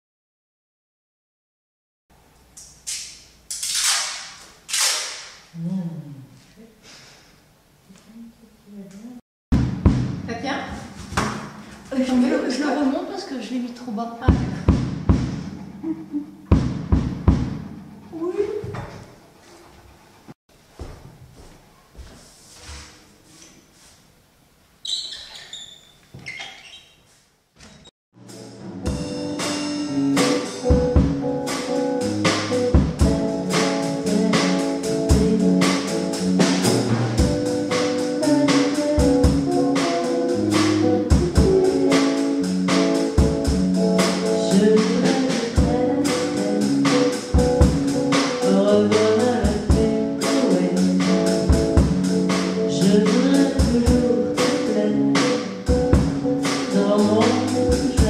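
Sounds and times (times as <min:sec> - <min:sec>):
drum kit beat: 0:09.5 - 0:11.6, 0:14.3 - 0:15.9, 0:16.5 - 0:17.9, 0:28.2 - 0:58.0
electric guitar: 0:28.2 - 0:58.0
woman singing: 0:33.9 - 0:36.0, 0:38.2 - 0:42.5, 0:44.3 - 0:47.2, 0:48.4 - 0:51.2, 0:52.7 - 0:55.5, 0:56.6 - 0:58.0.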